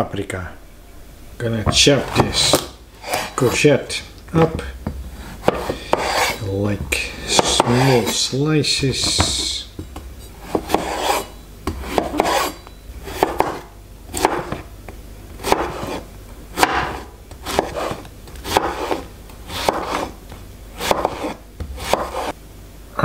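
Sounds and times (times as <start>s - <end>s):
knife slicing vegetable: 2.0s - 3.6s, 5.4s - 6.5s, 7.2s - 8.3s, 10.4s - 14.7s, 15.4s - 20.2s, 20.8s - 22.4s.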